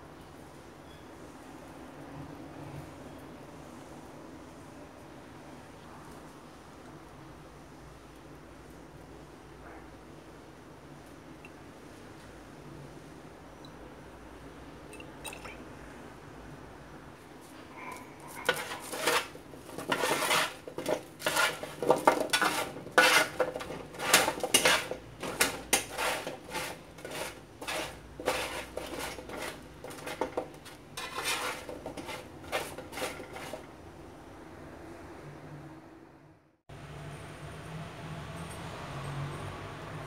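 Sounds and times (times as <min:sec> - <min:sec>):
metal utensil scraping a baking tray: 0:18.2 - 0:33.7.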